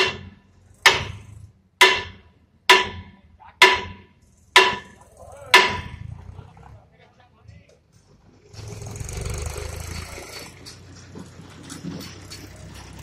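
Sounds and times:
hammer striking steel: 0.0s - 1.2s, 1.8s - 6.1s.

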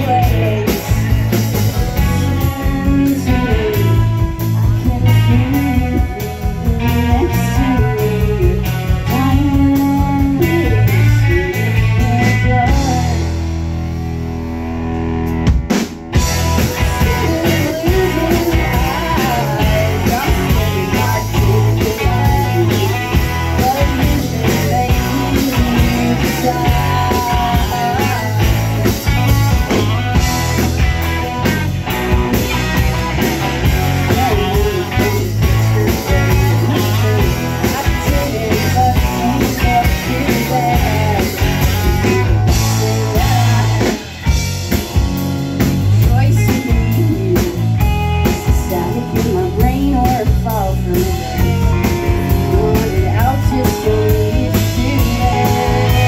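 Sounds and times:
lead vocals singing: 0.0s - 1.3s, 16.6s - 30.3s, 32.4s - 44.4s, 48.3s - 56.0s
bass guitar: 0.0s - 56.0s
drum kit: 0.0s - 56.0s
electric guitars: 0.0s - 56.0s.

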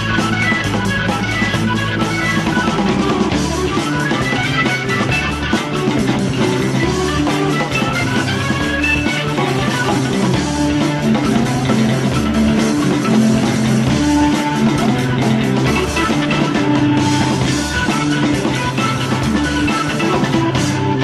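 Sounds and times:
progressive rock music: 0.0s - 21.0s.

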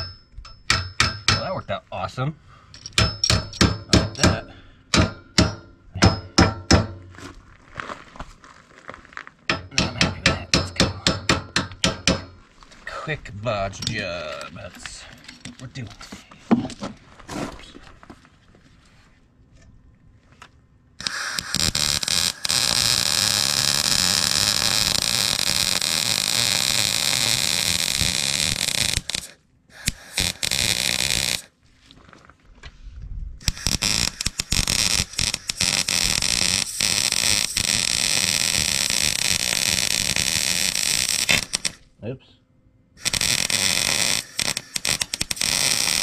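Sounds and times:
welder arc crackling: 21.0s - 31.5s, 33.4s - 41.8s, 43.0s - 46.0s.

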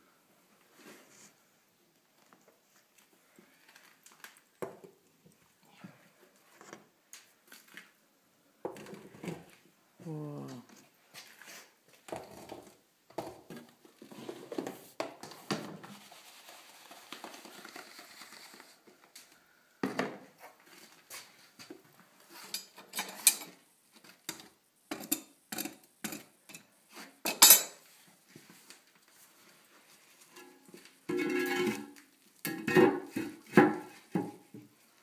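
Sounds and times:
metal tools and pots clinking: 27.3s - 27.8s, 30.3s - 33.3s.

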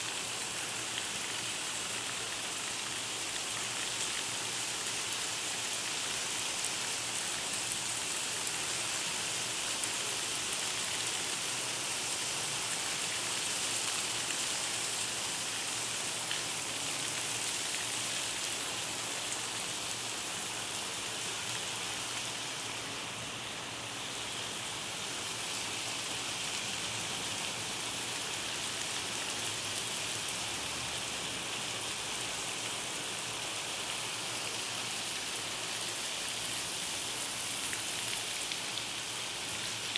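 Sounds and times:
heavy rain on pavement and roofs: 0.0s - 39.9s.

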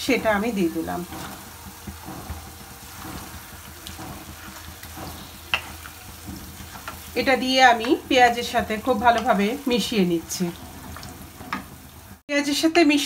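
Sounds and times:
spatula scraping pan: 0.0s - 12.2s
chicken sizzling in oil: 0.0s - 12.3s.

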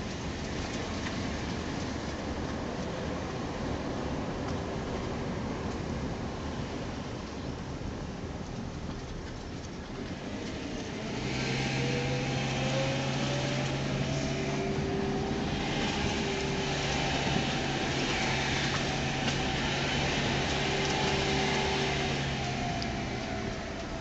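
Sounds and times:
car engine from inside cabin: 10.2s - 24.0s.

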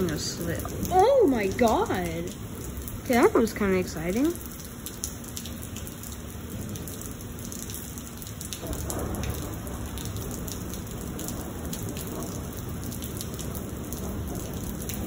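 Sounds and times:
heavy rain on pavement: 0.0s - 15.0s
thunder rumbling: 6.2s - 15.0s.

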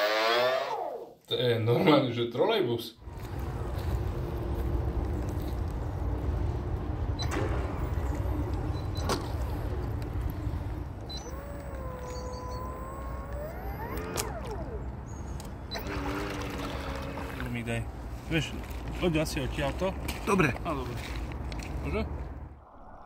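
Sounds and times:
rc boat electric motor whine: 9.6s - 17.7s.

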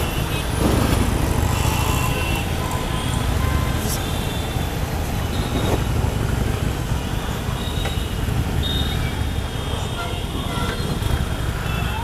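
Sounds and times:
motorcycle engine rumbling: 0.0s - 4.2s
road and traffic noise: 0.0s - 12.0s.

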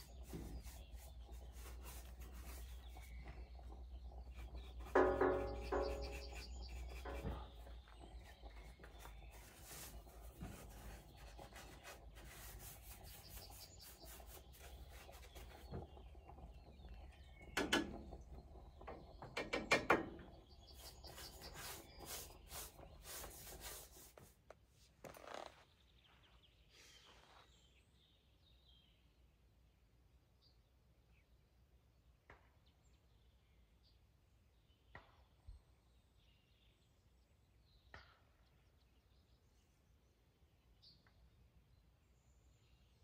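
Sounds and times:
paintbrush scrubbing wood: 0.0s - 16.0s, 20.6s - 24.4s.

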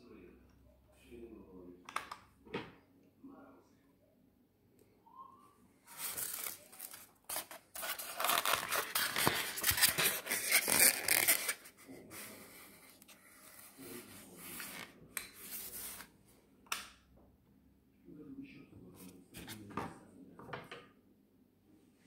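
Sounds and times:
rustling and scraping handling noise: 5.8s - 16.2s, 19.0s - 20.0s.

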